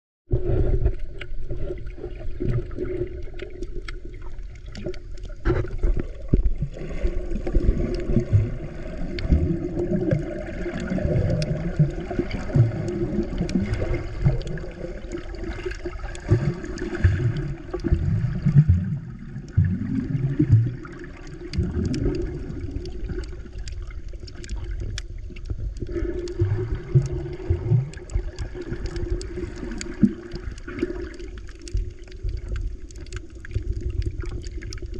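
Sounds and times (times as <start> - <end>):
muffled underwater water surges: 0.3 - 34.9
faint ticks: 21.4 - 26.4, 27.8 - 34.9.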